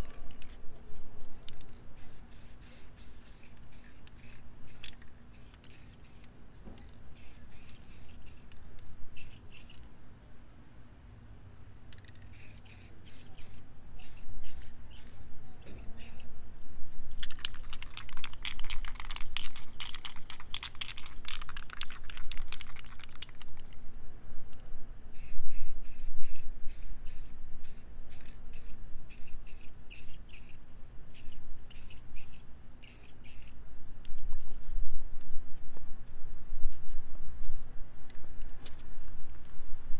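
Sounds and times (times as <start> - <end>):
spray can ball rattling: 1.6 - 6.3, 7.2 - 8.5, 9.2 - 9.8, 11.9 - 16.3, 17.1 - 23.7, 25.2 - 30.5, 31.2 - 33.5.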